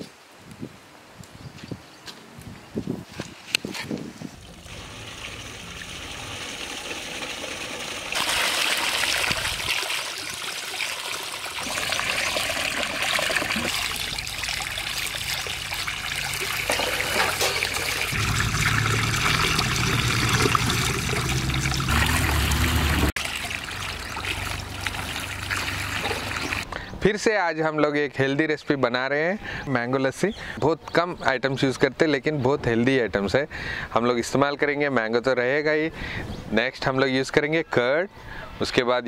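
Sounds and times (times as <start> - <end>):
water pouring into a steel pot: 4.4 - 26.6.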